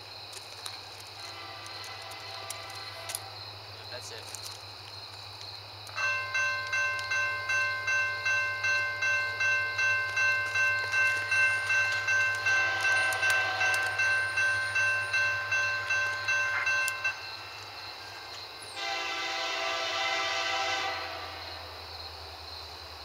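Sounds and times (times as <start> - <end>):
locomotive air horn: 1.2 - 3.4, 12.4 - 14.2, 18.8 - 21.6
railroad crossing bell ringing: 6.0 - 17.6.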